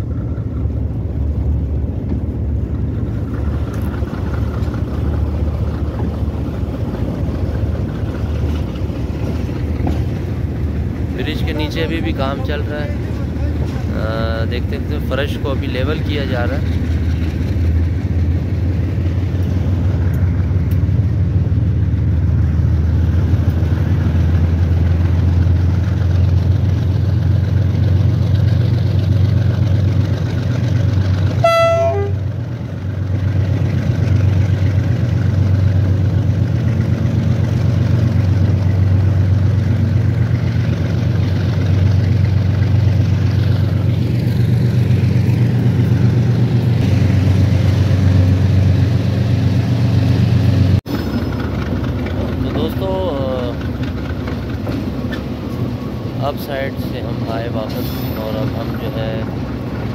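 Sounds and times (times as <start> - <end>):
diesel train engine drone: 0.0 - 59.9
train horn toot: 31.4 - 32.3.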